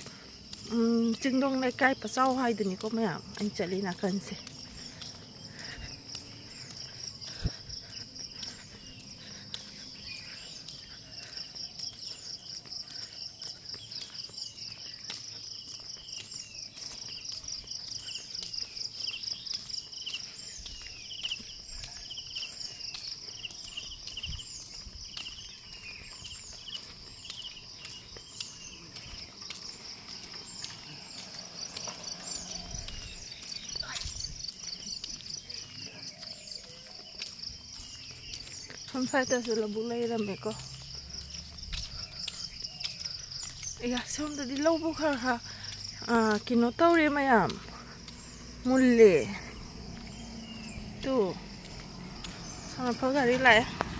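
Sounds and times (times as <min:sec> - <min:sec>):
insects chirring: 0:00.0 - 0:53.9.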